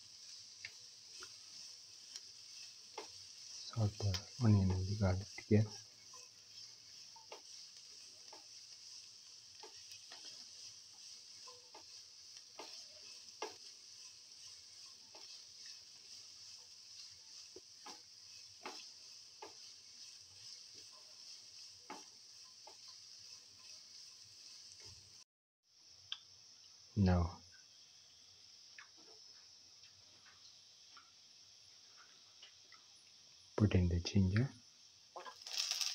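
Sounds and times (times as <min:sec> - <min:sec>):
spatula scraping and tapping pan: 0:00.0 - 0:25.2
onion sizzling in oil: 0:00.0 - 0:35.9.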